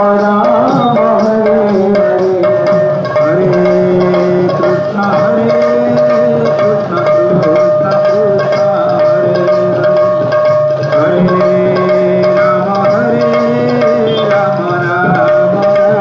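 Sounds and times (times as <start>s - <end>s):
devotional melody: 0.0s - 16.0s
steady drumming: 0.0s - 16.0s
high drone note: 0.4s - 2.4s, 13.8s - 14.7s.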